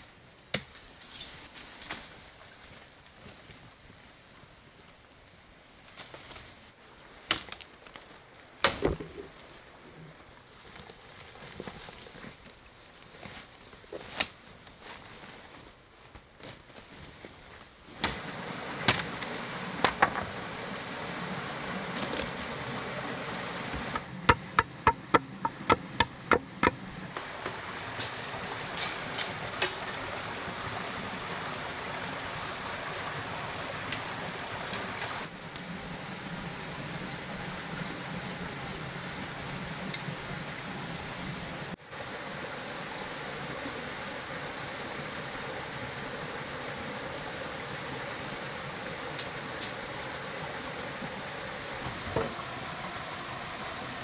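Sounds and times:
small waterfall and stream: 0.0 - 54.0
footsteps through undergrowth: 10.4 - 17.8
tool strikes on wood: 24.3 - 26.8.

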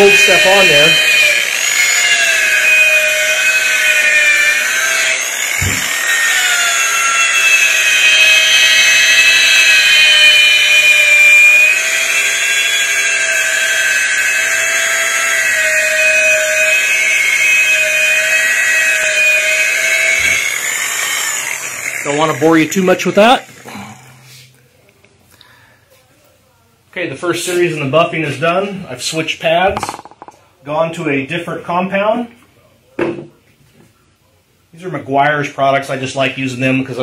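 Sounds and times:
rotary buffer motor whining: 0.0 - 24.2
short thump: 5.6 - 5.9.

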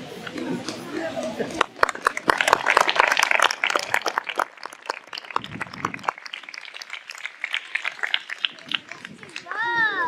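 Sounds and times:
audience applauding: 1.6 - 9.5.

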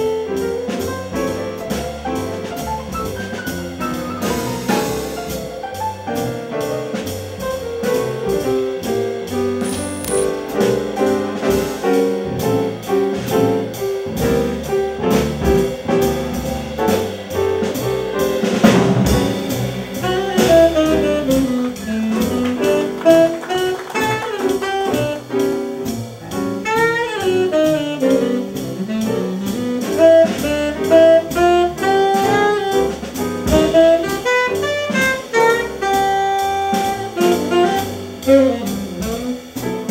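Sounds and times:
double bass: 0.0 - 39.9
drums: 0.0 - 39.9
piano: 0.0 - 39.9
saxophone melody: 20.0 - 25.5, 26.6 - 32.9, 33.5 - 39.5.

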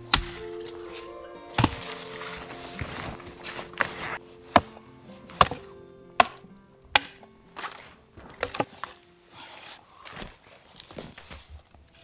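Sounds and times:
hatchet chopping tree trunk: 0.1 - 0.7, 1.5 - 2.2, 4.5 - 8.9.

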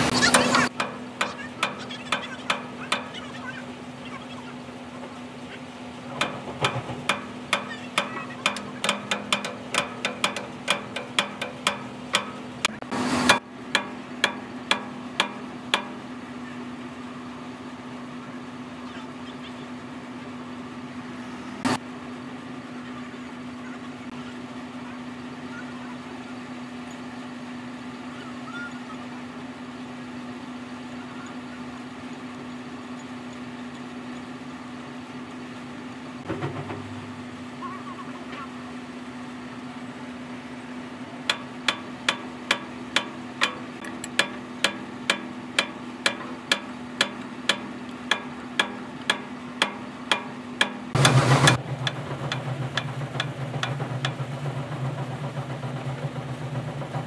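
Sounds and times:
steady machine hum: 0.0 - 57.0
hand tool clicking on nuts: 6.2 - 12.7, 41.3 - 54.2.

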